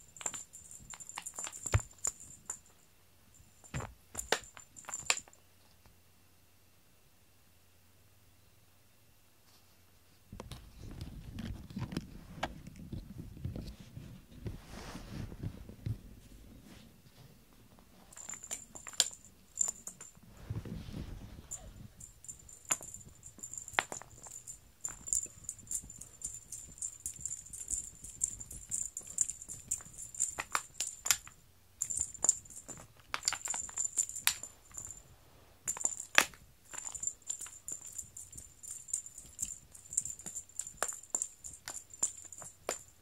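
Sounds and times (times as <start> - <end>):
toy clicking and rattling on mat: 0.0 - 5.4, 18.1 - 20.2, 21.4 - 35.0, 35.6 - 43.0.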